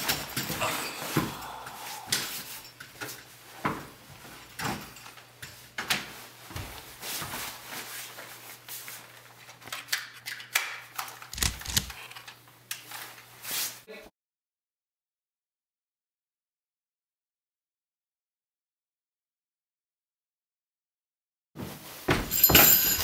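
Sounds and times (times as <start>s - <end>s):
knocks and scuffs on floor: 6.0s - 8.3s, 21.6s - 23.0s
clothing rustle: 6.0s - 9.6s.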